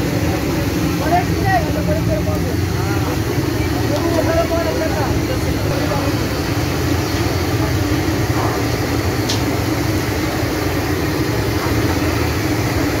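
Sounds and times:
chicken deep-frying in oil: 0.0 - 13.0
gas burner roar: 0.0 - 13.0.

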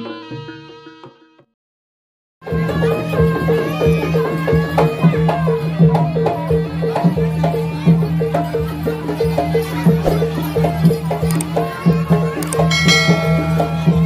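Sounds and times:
hand-drum strokes: 9.6 - 14.0
metallophones repeating quick notes: 12.6 - 14.0.

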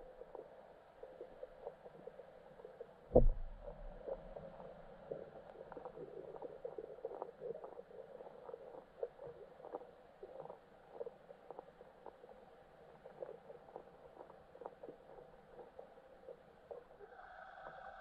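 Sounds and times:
faint underwater clicks: 0.0 - 17.8
muffled underwater hum: 0.0 - 18.0
deep underwater thump: 3.1 - 4.4.

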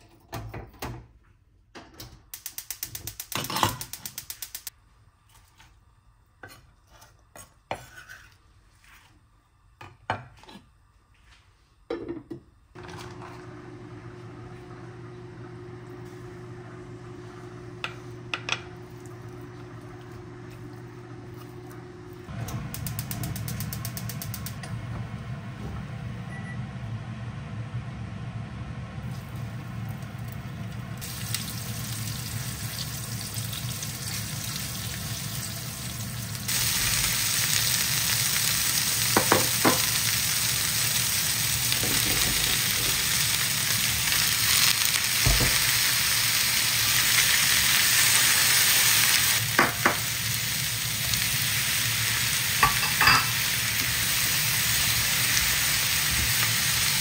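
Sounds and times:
food sizzling in frying pan: 29.0 - 57.0.

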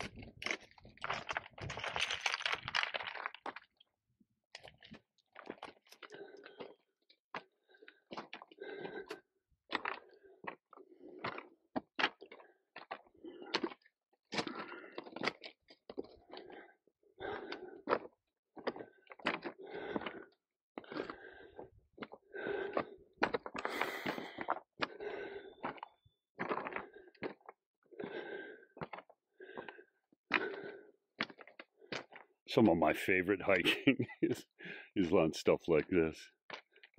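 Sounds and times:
footsteps on loose rock: 0.0 - 3.8.

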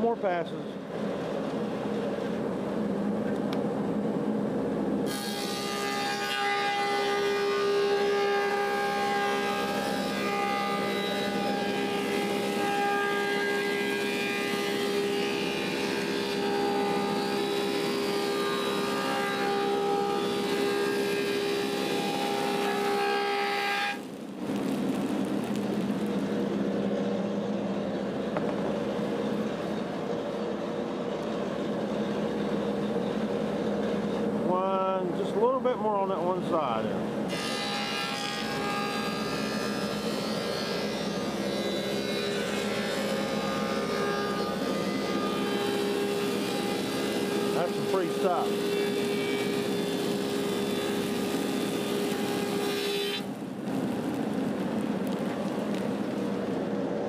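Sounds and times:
thickness planer running: 5.0 - 24.0, 25.6 - 53.4
planer cutting wood whine: 5.0 - 24.5, 37.3 - 53.9.

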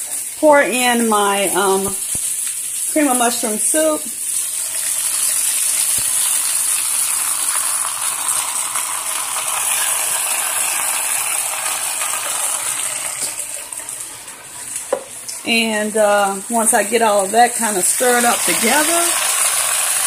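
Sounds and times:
vegetables sizzling in frying pan: 0.0 - 20.0.

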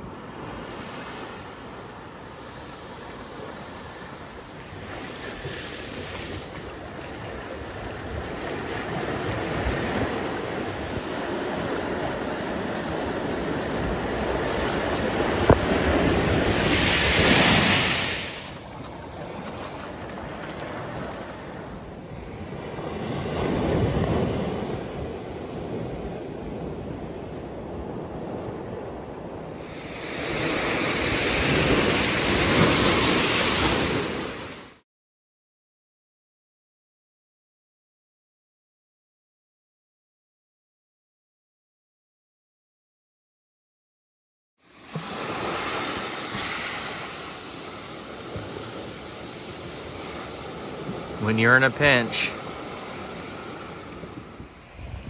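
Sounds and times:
surf breaking on pebble beach: 44.7 - 54.4.

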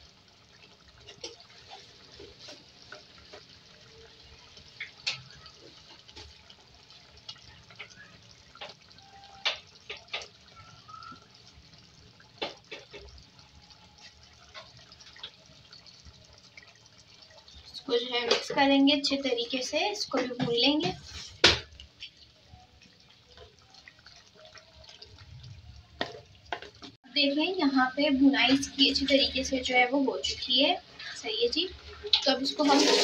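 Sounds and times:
food sizzling in oil: 0.0 - 33.0
oil pops and crackles: 4.6 - 11.3, 12.2 - 13.3.

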